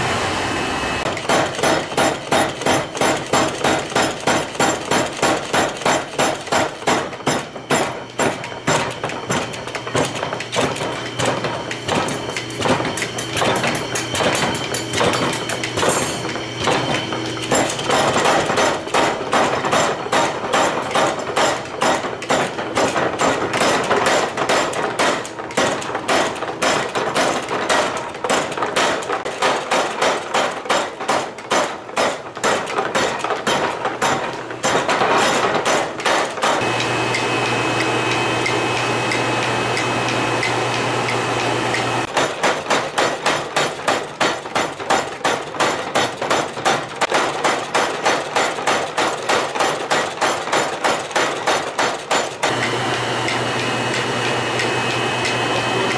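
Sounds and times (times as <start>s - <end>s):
machine hum: 0.0s - 1.2s, 36.6s - 42.1s, 52.4s - 55.9s
power hammer pounding steel: 0.0s - 55.9s.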